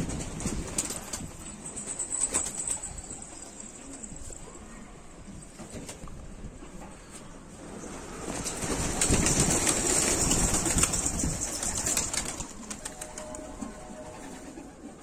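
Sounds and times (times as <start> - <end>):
pigeon wingbeats and wing claps: 8.4 - 13.7.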